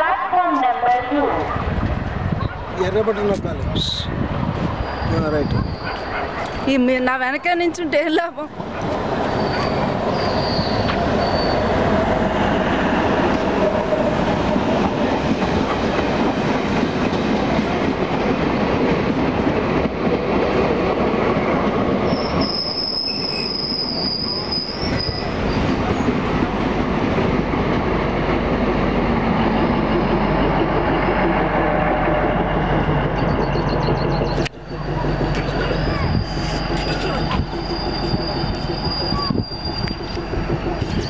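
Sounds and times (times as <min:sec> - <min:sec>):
train rumble and wheel clatter: 0:00.0 - 0:41.0
high metallic wheel squeal: 0:04.8 - 0:06.1, 0:09.2 - 0:11.7, 0:22.1 - 0:25.7, 0:33.2 - 0:41.0.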